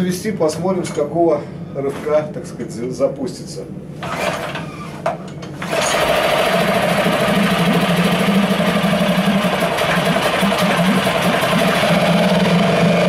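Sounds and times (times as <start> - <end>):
recoil starter cord pull: 4.0 - 4.6, 5.5 - 12.4
outboard motor running: 5.6 - 13.0.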